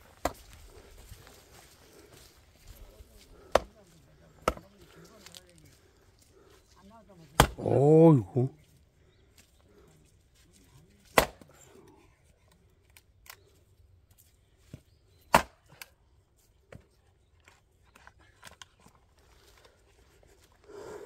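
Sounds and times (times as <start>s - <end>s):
axe striking log: 4.4s - 4.6s, 7.4s - 7.7s, 11.1s - 11.5s, 15.3s - 15.6s.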